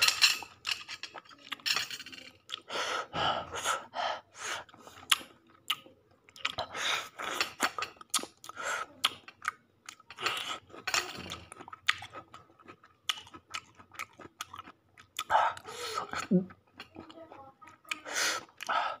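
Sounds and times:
child chewing and smacking: 0.0 - 19.0.

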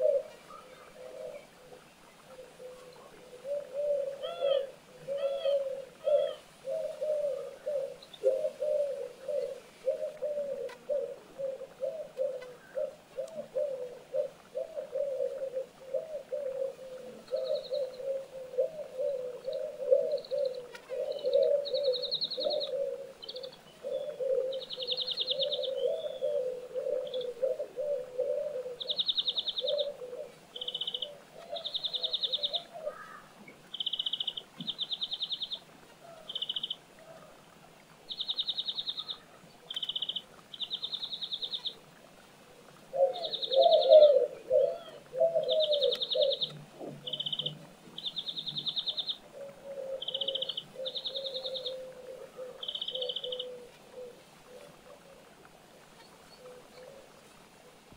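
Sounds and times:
short low bird calls: 0.0 - 37.4, 38.1 - 41.9, 42.9 - 55.3.

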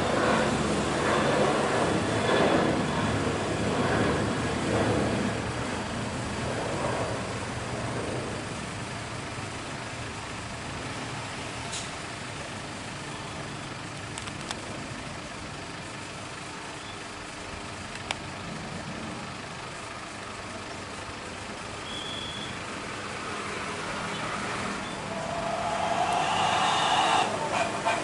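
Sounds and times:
jet engine rumble: 0.0 - 9.2, 23.6 - 28.0.

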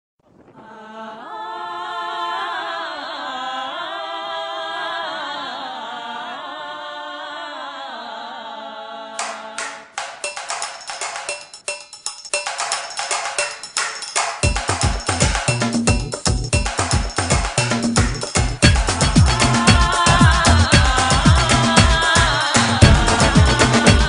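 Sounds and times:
wavering singing voices: 0.3 - 10.0, 18.6 - 24.0
fast percussion beat: 10.0 - 24.0.

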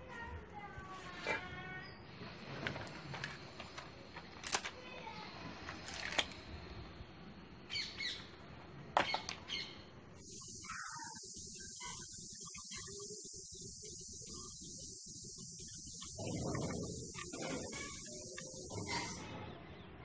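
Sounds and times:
plastic attachments clicking: 2.6 - 4.8, 5.7 - 6.4
steady hiss: 9.9 - 19.5.

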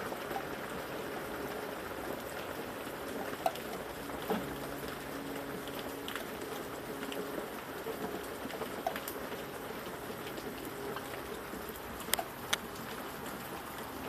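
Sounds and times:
steady rain hiss: 0.0 - 14.0
drops dripping and tapping: 3.1 - 9.6, 10.2 - 13.9.

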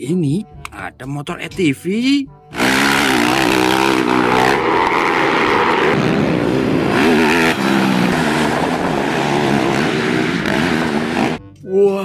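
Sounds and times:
quad bike engine revving: 2.5 - 11.5.

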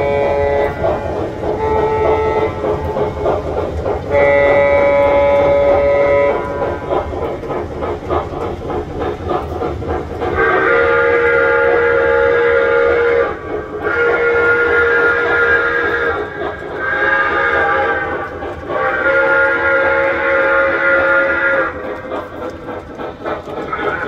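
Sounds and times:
steam whistle: 0.0 - 3.2, 4.1 - 6.9, 10.4 - 21.9
model train chuffing: 0.0 - 24.0.

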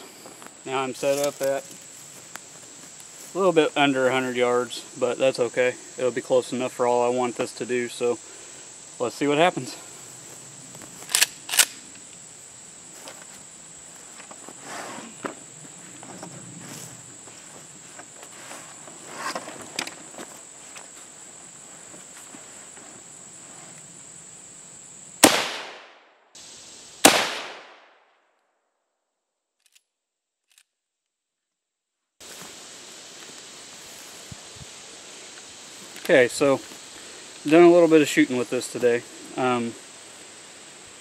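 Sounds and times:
high insect drone: 0.0 - 27.9, 32.2 - 41.0
rifle shots with echo: 25.2 - 26.0, 27.0 - 27.9.

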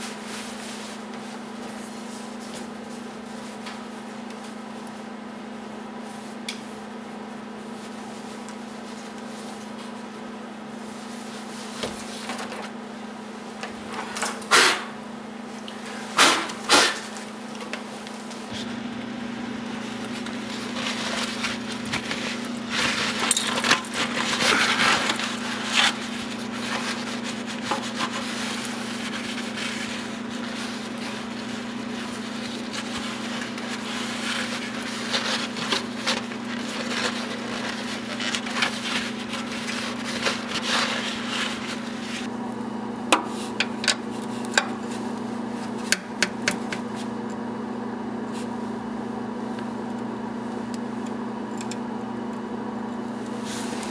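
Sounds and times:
towel rubbing on metal pan: 20.4 - 42.3.

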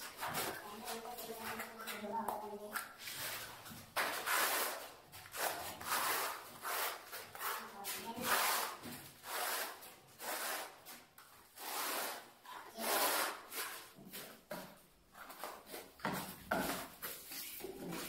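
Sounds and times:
trowel scraping adhesive: 3.1 - 14.3.

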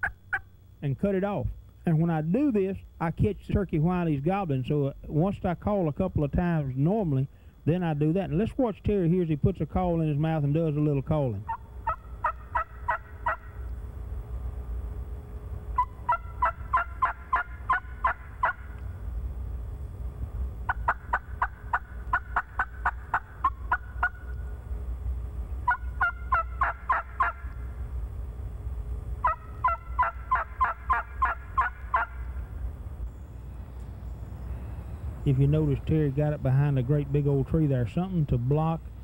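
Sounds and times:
turkey call yelps: 0.0 - 0.5, 11.4 - 13.6, 15.8 - 18.8, 20.7 - 24.3, 25.6 - 27.6, 29.2 - 32.3.

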